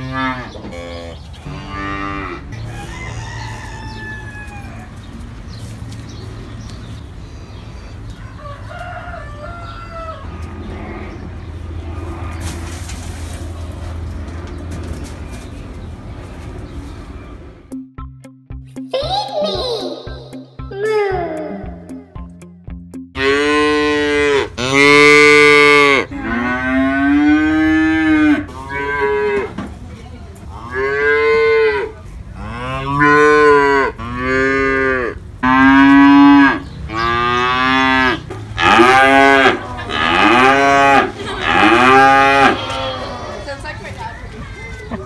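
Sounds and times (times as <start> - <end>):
calves mooing: 0.0 - 3.4, 23.2 - 29.6, 30.5 - 43.6.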